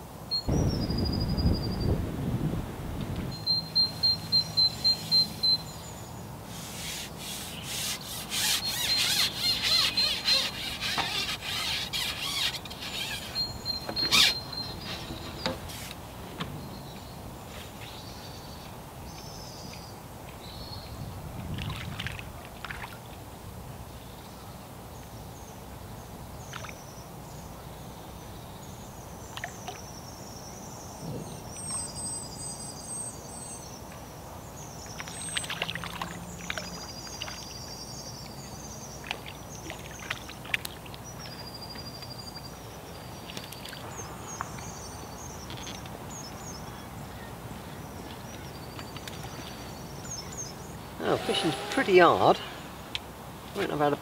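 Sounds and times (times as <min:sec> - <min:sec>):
small birds chirping: 0:03.3 - 0:21.0, 0:26.4 - 0:53.0
fishing pole rubbing and clicking: 0:06.5 - 0:16.0.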